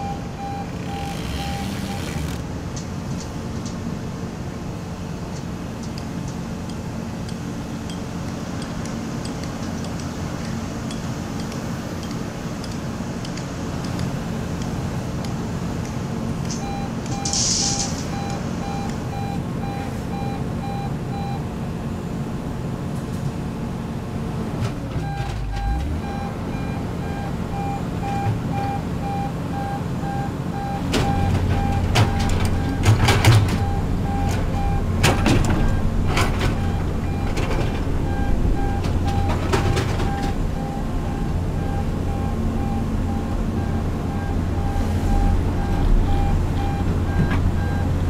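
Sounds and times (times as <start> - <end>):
rapid warning beeps: 0.0 - 2.2, 16.5 - 21.4, 25.0 - 47.9
diesel engines running: 0.0 - 48.0.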